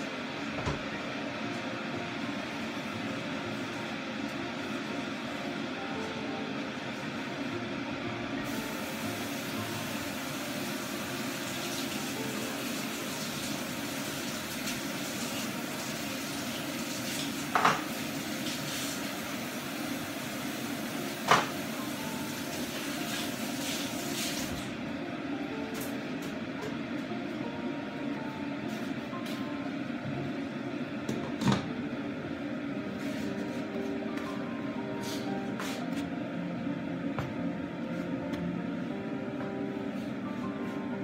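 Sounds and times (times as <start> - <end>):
steady low hum: 0.0 - 11.0, 24.7 - 41.0.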